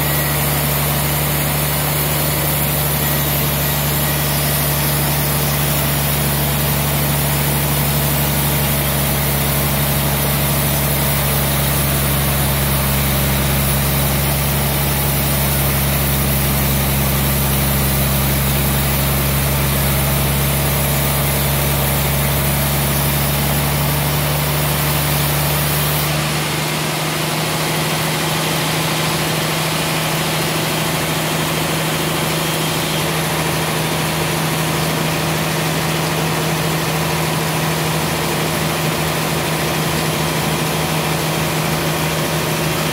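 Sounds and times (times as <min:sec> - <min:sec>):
band saw cutting log: 0:00.0 - 0:42.9.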